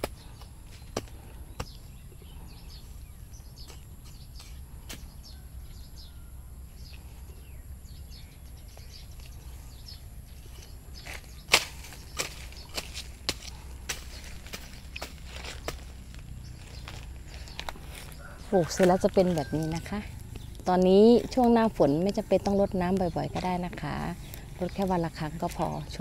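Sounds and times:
hand hoe knocking into sandy soil: 0:00.0 - 0:02.0, 0:10.6 - 0:16.2
faint bird chirps: 0:00.0 - 0:12.9
low wind rumble: 0:00.0 - 0:26.0.

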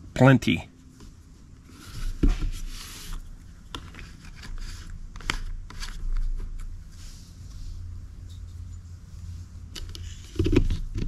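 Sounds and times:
clicks and scrapes of handling: 0:01.6 - 0:06.7, 0:09.7 - 0:11.0.

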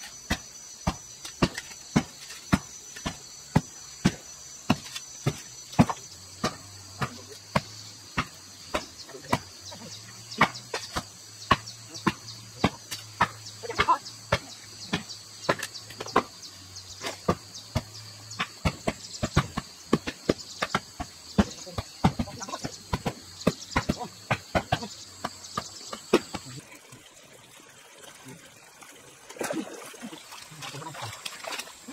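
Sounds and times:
high insect drone: 0:00.0 - 0:26.8
hand tool chopping strikes: 0:00.2 - 0:09.5, 0:10.3 - 0:16.4, 0:17.0 - 0:26.5.

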